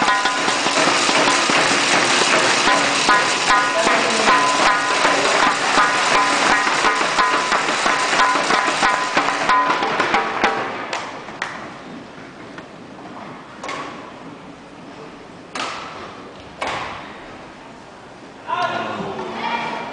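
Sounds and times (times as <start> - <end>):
music: 0.0 - 10.7.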